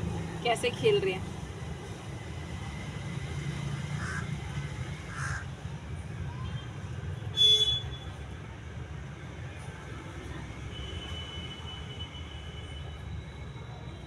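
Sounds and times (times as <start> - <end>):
low traffic rumble: 0.0 - 11.3
crow cawing: 4.0 - 4.3, 5.1 - 5.4.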